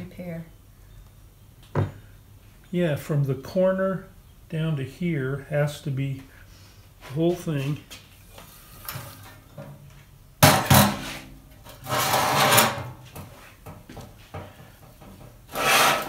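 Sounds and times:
scraping slide: 0:10.9 - 0:12.9, 0:15.5 - 0:16.0.

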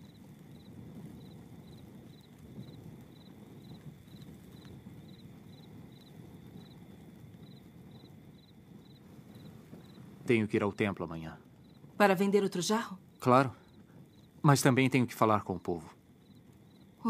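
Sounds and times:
cricket chirping: 0:00.0 - 0:17.0.

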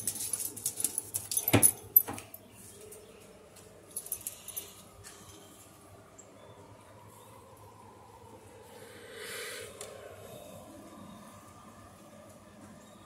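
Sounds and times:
dog collar tags jingling: 0:00.0 - 0:02.5, 0:03.9 - 0:05.4.

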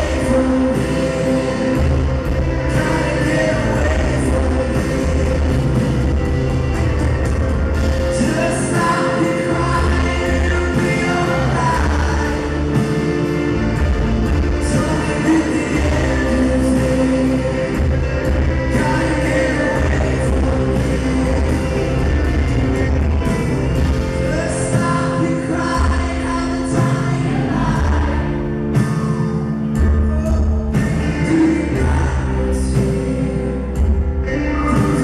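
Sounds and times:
man singing into microphone: 0:00.0 - 0:02.0, 0:02.6 - 0:05.8, 0:08.1 - 0:12.8, 0:14.6 - 0:17.9, 0:18.6 - 0:22.1, 0:24.2 - 0:28.2, 0:29.9 - 0:35.0
live band music: 0:00.0 - 0:35.0.

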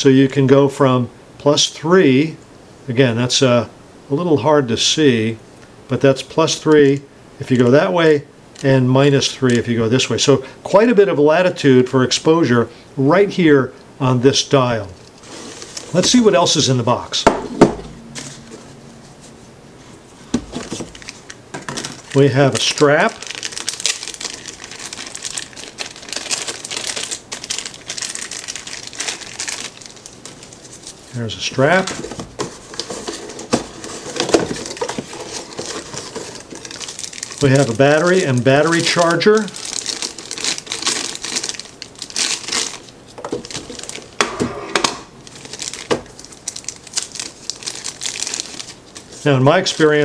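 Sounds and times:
plastic bag crinkling: 0:15.0 - 0:16.6, 0:19.9 - 0:44.2, 0:45.2 - 0:50.0.

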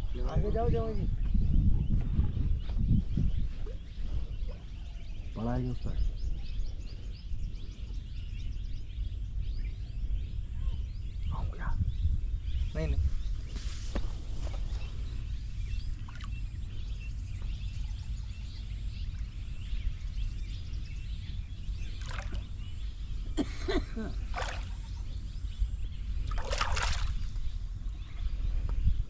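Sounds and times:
river water flowing: 0:22.0 - 0:22.4, 0:24.2 - 0:25.0, 0:26.3 - 0:27.2.

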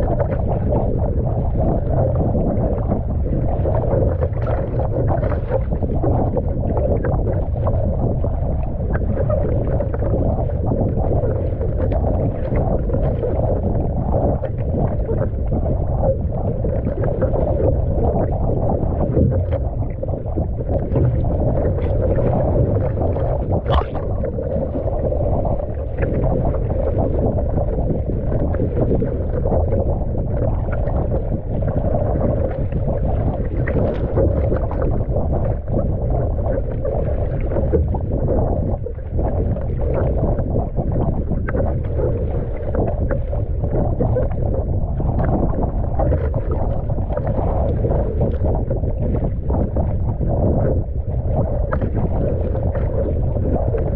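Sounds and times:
water splashing along hull: 0:00.0 - 0:53.9
wind rumbling on microphone: 0:00.0 - 0:53.9.

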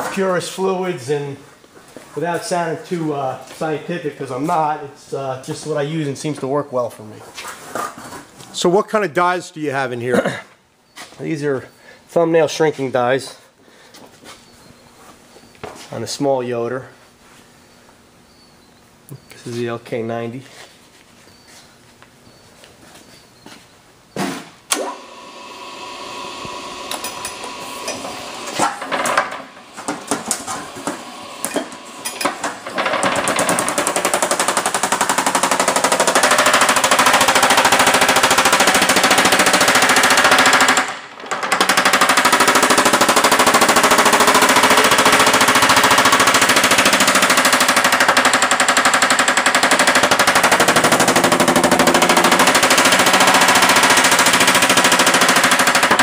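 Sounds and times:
power hammer pounding sheet metal: 0:27.2 - 0:56.0.

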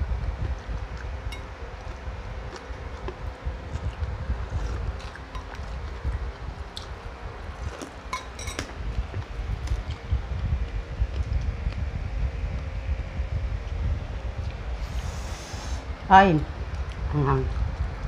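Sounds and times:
faint hum: 0:00.0 - 0:18.0
steady low rumble: 0:00.0 - 0:18.0
person chewing: 0:01.4 - 0:10.0
dishes clinking: 0:05.3 - 0:05.7, 0:08.1 - 0:08.7.

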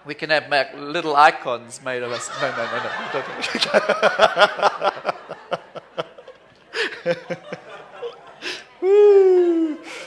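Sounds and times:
man laughing: 0:02.2 - 0:10.0.

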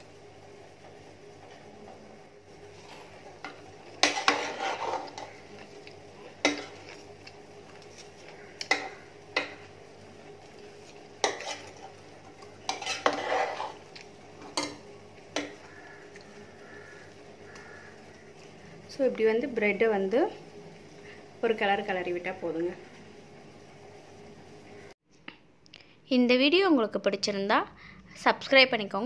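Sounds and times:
spoon scraping through rice: 0:02.6 - 0:09.7, 0:10.5 - 0:14.1.

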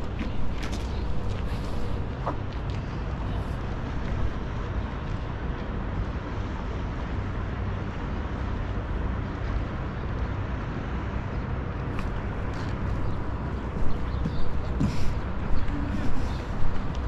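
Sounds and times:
faint machine hum: 0:00.0 - 0:17.0
low outdoor rumble: 0:00.0 - 0:17.0.

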